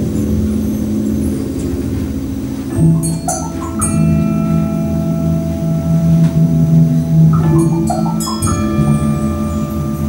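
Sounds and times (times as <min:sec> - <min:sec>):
low percussion roll: 0:00.0 - 0:10.0
ringing sustained notes: 0:00.0 - 0:10.0
struck bell and mallet notes: 0:02.7 - 0:10.0.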